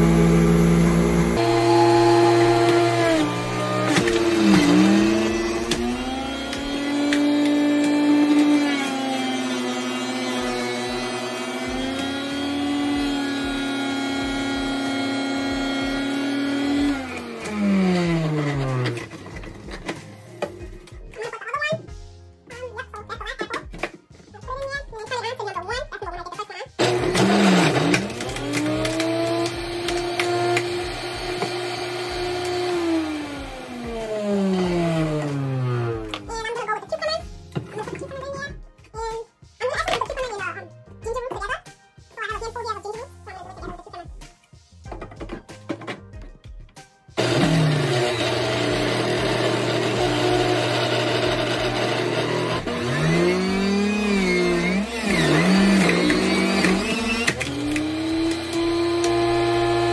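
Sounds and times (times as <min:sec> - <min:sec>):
juicer basket winding down: 0:00.0 - 0:19.4, 0:26.8 - 0:36.2, 0:47.2 - 0:59.9
juicer motor whining: 0:00.0 - 0:20.0, 0:26.8 - 0:36.3, 0:47.2 - 0:59.9.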